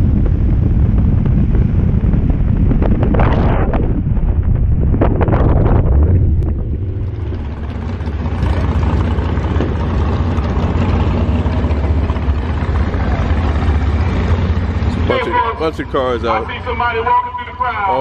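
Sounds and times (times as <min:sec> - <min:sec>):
car engine idling: 0:05.9 - 0:18.0.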